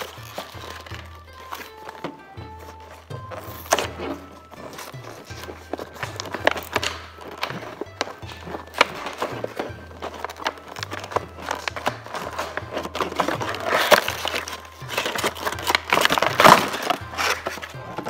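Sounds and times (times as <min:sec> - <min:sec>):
background music with bass line: 0:00.0 - 0:18.0
plastic packaging crinkling: 0:00.0 - 0:18.0.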